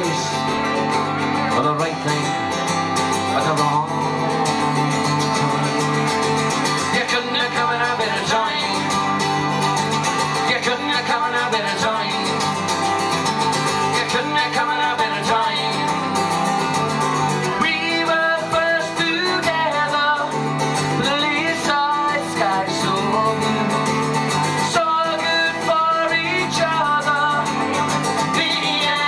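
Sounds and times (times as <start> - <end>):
man singing into a microphone: 0.0 - 0.5, 1.4 - 2.4, 3.2 - 4.5, 6.8 - 9.1, 10.3 - 12.6, 13.8 - 16.1, 17.4 - 29.0
acoustic guitars playing: 0.0 - 29.0.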